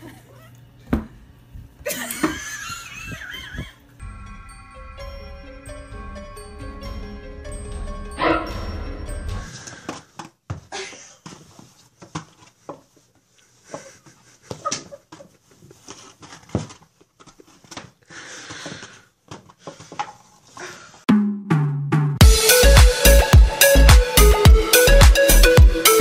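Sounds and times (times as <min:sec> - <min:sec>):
soft knocks and scuffs: 0:09.9 - 0:13.1, 0:13.7 - 0:20.2.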